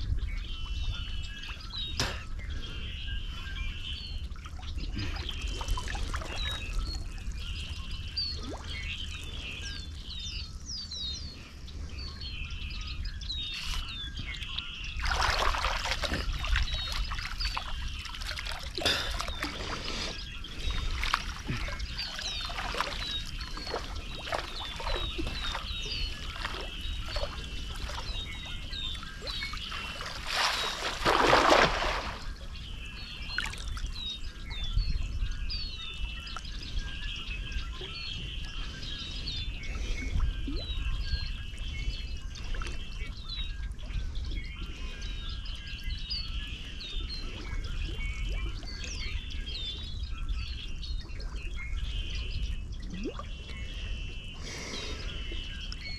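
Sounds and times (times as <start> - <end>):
small birds chirping: 0.0 - 55.9
wind rumble on microphone: 0.0 - 55.9
water splashing against canoe: 15.0 - 32.5.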